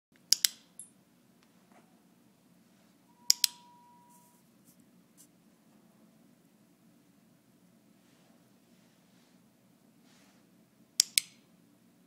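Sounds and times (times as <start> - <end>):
faint steady tone: 1.9 - 4.9.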